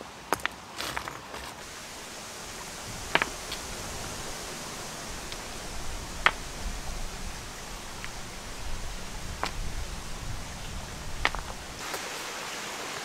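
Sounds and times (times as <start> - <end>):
steady hiss: 1.6 - 13.0
stone on stone clacks: 6.1 - 6.5, 9.3 - 9.7, 11.2 - 12.0.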